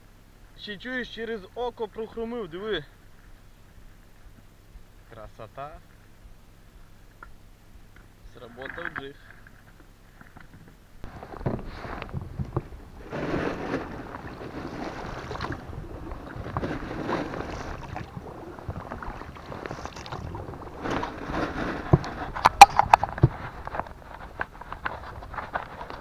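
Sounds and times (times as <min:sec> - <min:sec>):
oars splashing through water: 0:11.1 - 0:26.0.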